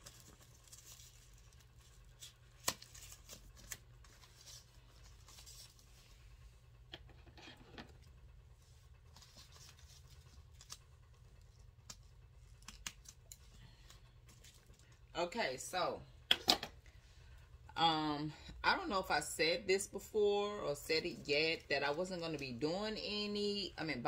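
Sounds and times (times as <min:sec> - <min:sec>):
packing material rustling: 0:00.0 - 0:06.2
steady low hum: 0:00.0 - 0:24.0.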